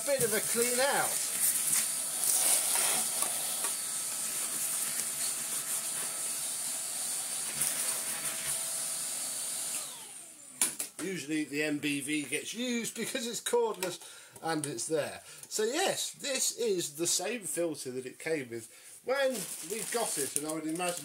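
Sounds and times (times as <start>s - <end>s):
vacuum cleaner running: 0.0s - 10.8s
motor winding down whine: 6.7s - 10.6s.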